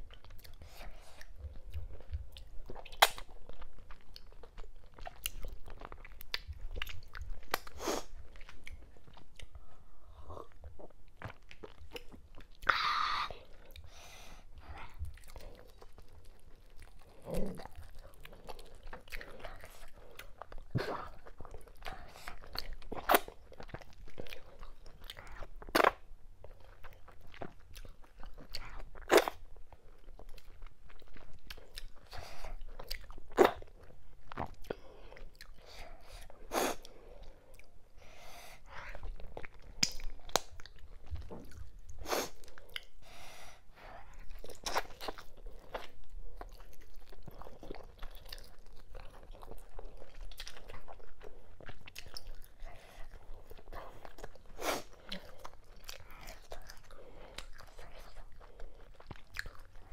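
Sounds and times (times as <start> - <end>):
wet chewing: 0.0 - 37.8, 43.8 - 59.9
lip smacks: 0.4 - 3.3, 39.4 - 42.9.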